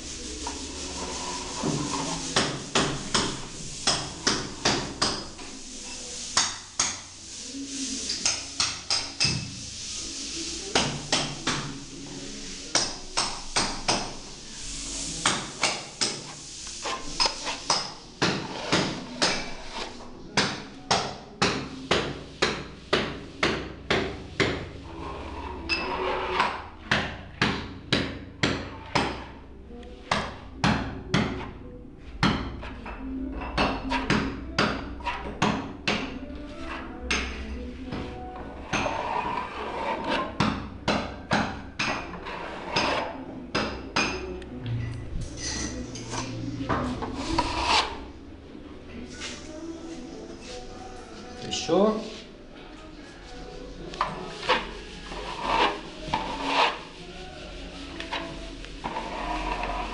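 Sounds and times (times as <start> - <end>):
spatula clacking on tiled wall: 0.0 - 24.7, 25.6 - 29.4, 32.2 - 36.2, 38.6 - 44.3, 53.9 - 57.0.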